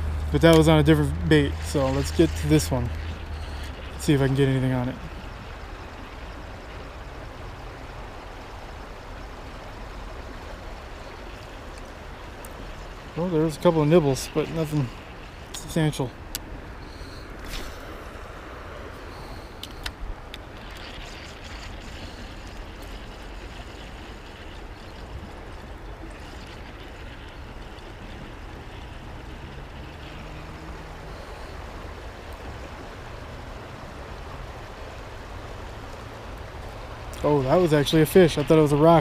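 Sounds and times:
even hiss: 0:16.8 - 0:24.3.

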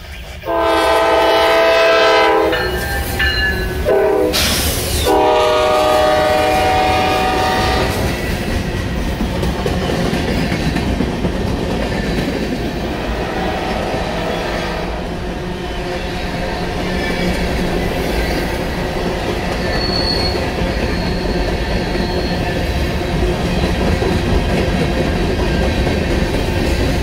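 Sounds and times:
freight cars rumbling on rails: 0:00.0 - 0:27.0
locomotive horn blasts: 0:00.5 - 0:03.0, 0:03.8 - 0:04.4, 0:05.0 - 0:08.0.

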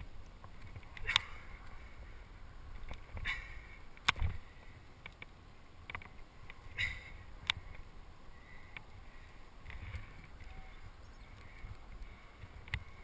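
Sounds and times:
wind rumble: 0:00.0 - 0:13.0
climbing gear clicking: 0:00.2 - 0:01.8.

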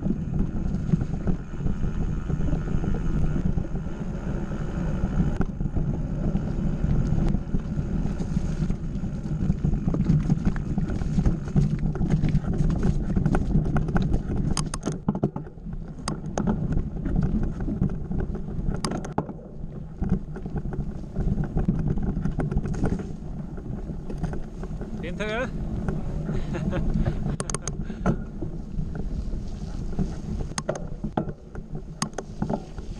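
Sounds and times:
bike clicks and rattles: 0:00.0 - 0:04.1, 0:05.0 - 0:32.9
tyres rumbling over dirt trail: 0:00.0 - 0:32.9
wind on microphone: 0:00.0 - 0:32.9.

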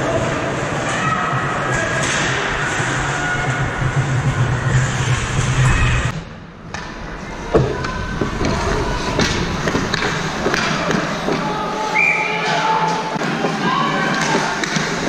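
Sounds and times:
low hum: 0:01.7 - 0:12.4
skates scraping ice: 0:06.8 - 0:15.0
hockey sticks and puck clacking: 0:09.2 - 0:15.0.

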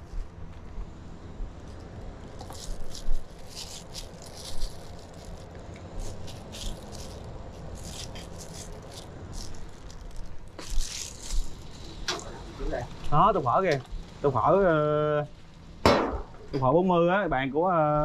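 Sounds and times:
low background hum: 0:00.0 - 0:18.0.

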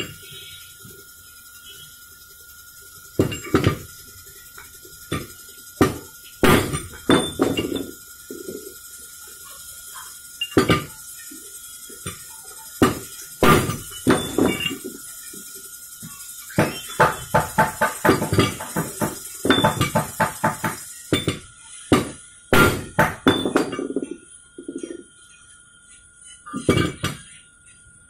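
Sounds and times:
faint steady whine: 0:00.0 - 0:28.0.

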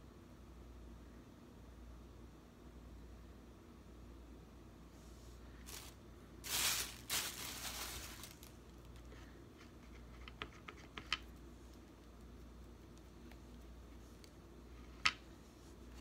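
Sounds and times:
handling rustle: 0:05.6 - 0:10.1.

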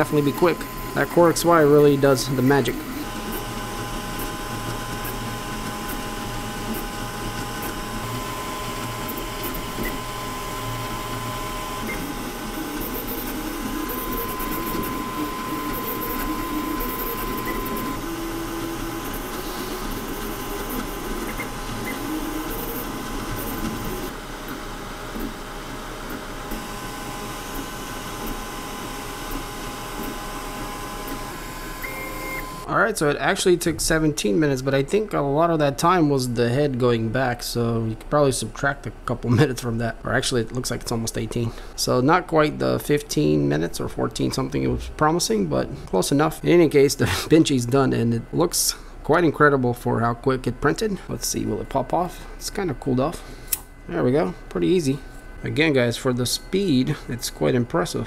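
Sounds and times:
stepper motors whining: 0:00.0 - 0:24.2
printer fans whirring: 0:00.0 - 0:58.0.

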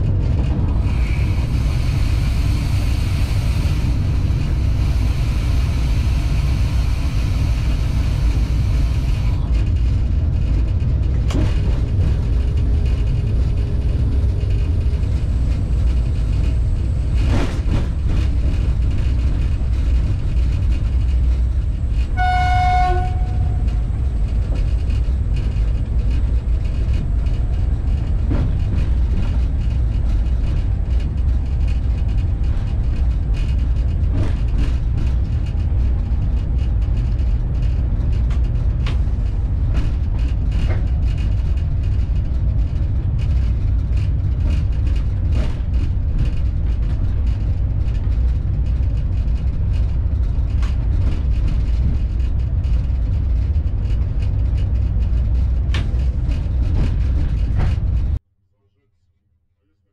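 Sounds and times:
locomotive low rumble: 0:00.0 - 0:58.2
locomotive horn blast: 0:22.1 - 0:23.8.

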